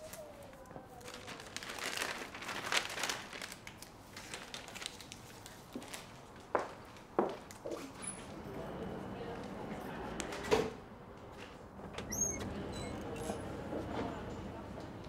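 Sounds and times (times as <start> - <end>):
paper crinkling and rustling: 0.0 - 8.0.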